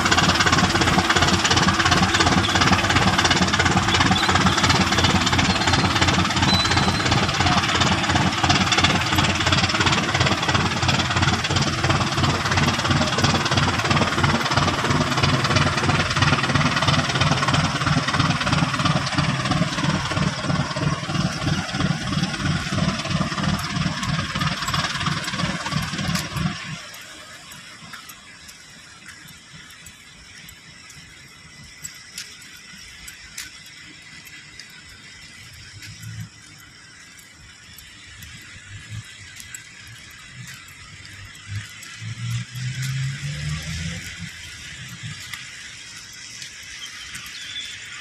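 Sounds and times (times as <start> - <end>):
boat engine knocking: 0.0 - 26.8.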